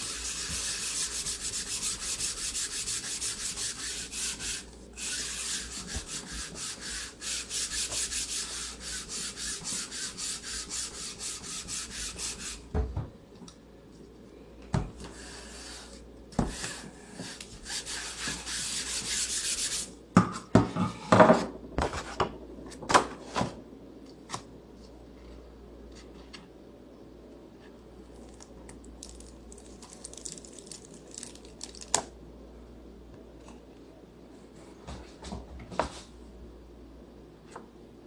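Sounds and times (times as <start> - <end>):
scratchy rubbing on paper: 0.0 - 12.6.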